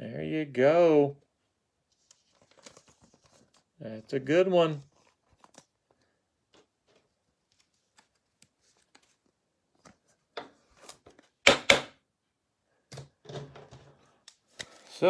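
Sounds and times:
cards and plastic holder rustling: 0:01.9 - 0:11.4, 0:13.4 - 0:15.0.

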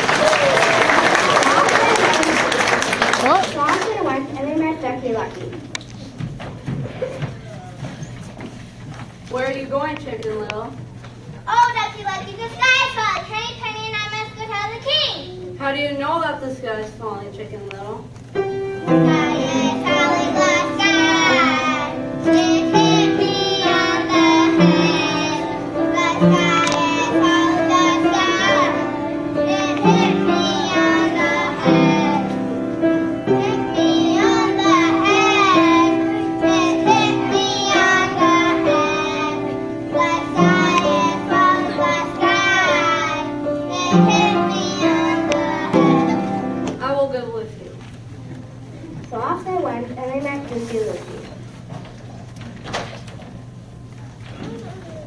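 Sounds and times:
piano chords: 0:18.3 - 0:47.1
children singing: 0:18.8 - 0:46.7.

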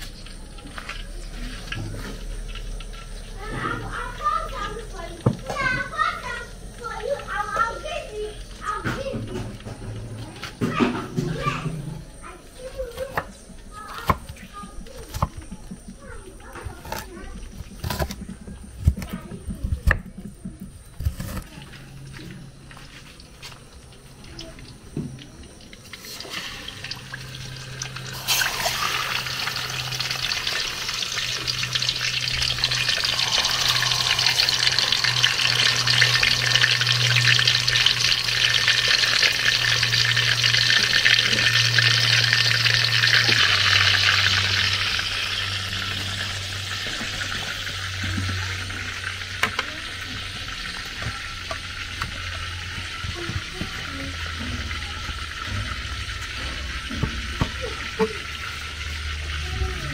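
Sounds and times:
fish sizzling in hot oil: 0:00.0 - 0:08.8, 0:22.5 - 0:59.8.

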